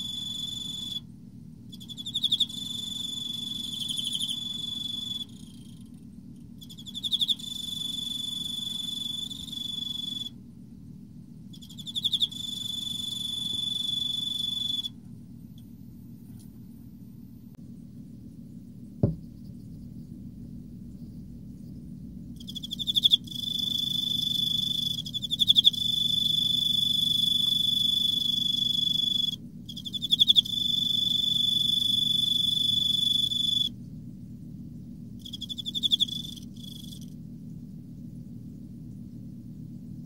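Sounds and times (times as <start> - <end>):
cricket chirping and trilling: 0.0 - 1.1, 1.7 - 10.4, 11.4 - 15.0, 22.3 - 33.7, 34.8 - 39.5
sharp knock: 19.0 - 19.2.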